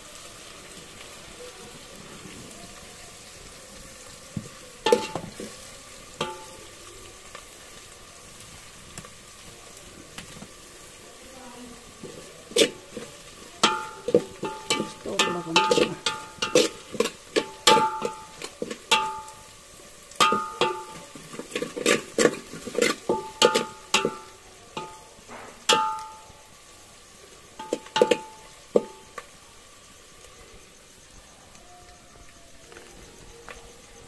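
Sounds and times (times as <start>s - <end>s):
metal utensil knocking on pot: 4.9s - 5.4s, 6.2s - 6.6s, 13.6s - 19.4s, 20.2s - 21.0s, 21.6s - 26.4s, 27.6s - 29.0s.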